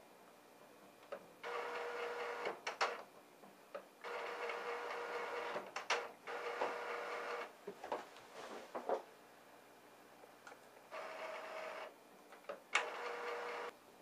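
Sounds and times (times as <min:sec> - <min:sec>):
printer motor whirring: 0:01.4 - 0:02.6, 0:04.0 - 0:07.5, 0:10.9 - 0:11.9, 0:12.7 - 0:13.7
printer clicks and clunks: 0:12.4 - 0:13.6.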